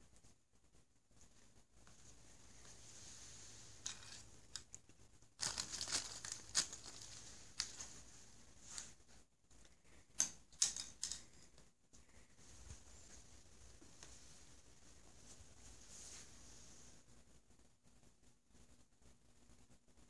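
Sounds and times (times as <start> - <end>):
nylon fabric tunnel rustling: 5.4 - 8.9.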